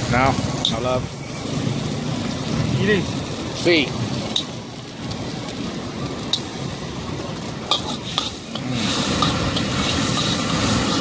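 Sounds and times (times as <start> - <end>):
egg sizzling in oil: 0.0 - 11.0
metal spatula scraping wok: 7.6 - 11.0.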